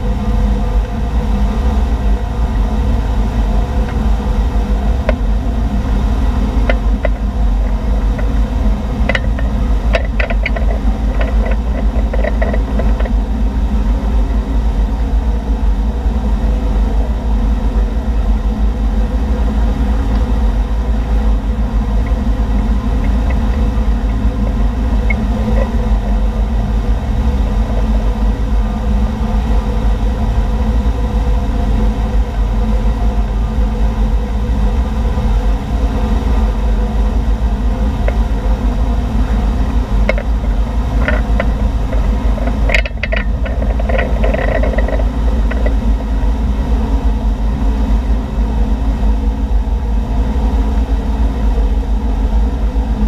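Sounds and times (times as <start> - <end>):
boat engine rumbling: 0.0 - 53.0.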